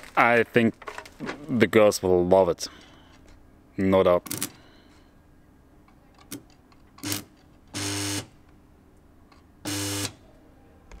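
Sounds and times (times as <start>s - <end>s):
welding arc buzzing: 7.0s - 8.3s, 9.7s - 10.2s.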